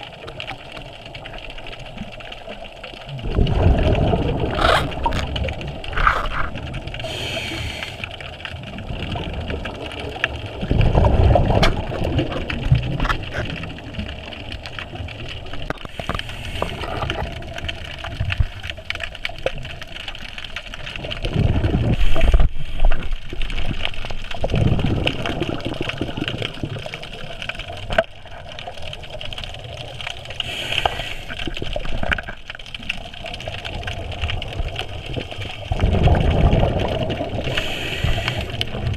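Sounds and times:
gurgling rush of bubbles: 0.0s - 38.9s
regulator hissing inhales: 7.0s - 8.1s, 30.4s - 31.4s, 37.5s - 38.6s.

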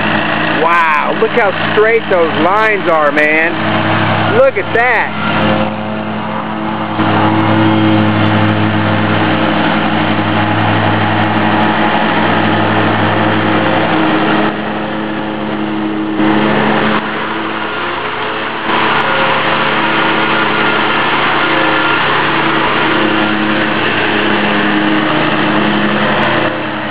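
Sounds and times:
riding mower engine running: 0.0s - 26.9s.

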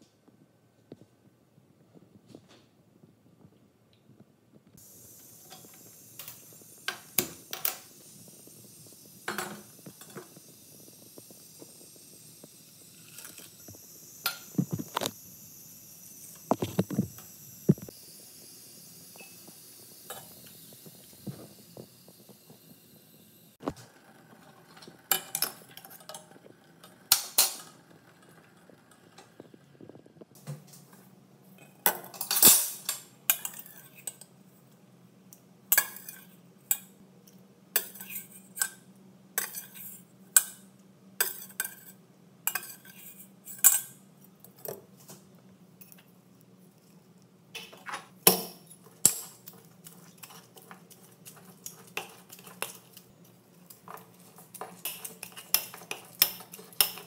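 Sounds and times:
steel cookware clanking: 24.5s - 26.4s, 27.1s - 27.8s, 31.6s - 34.3s, 37.8s - 38.8s, 41.2s - 44.0s, 47.6s - 53.0s, 53.7s - 57.0s.

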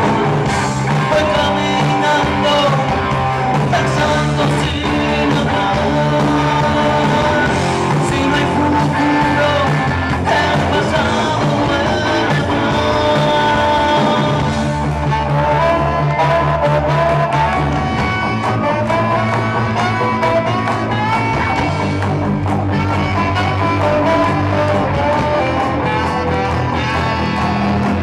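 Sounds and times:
drums: 0.0s - 28.0s
electric guitars: 0.0s - 28.0s
man singing: 0.0s - 28.0s.

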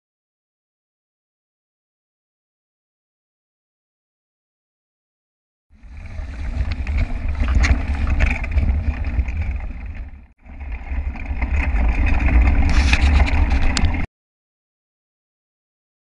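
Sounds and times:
wind noise on microphone: 5.8s - 14.1s
bike knocks and rattles: 6.1s - 14.1s.

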